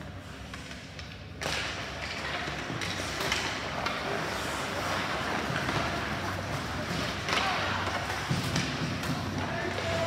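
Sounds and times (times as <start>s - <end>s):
hockey sticks clacking on puck: 0.0s - 10.0s
skate blades scraping ice: 2.4s - 10.0s.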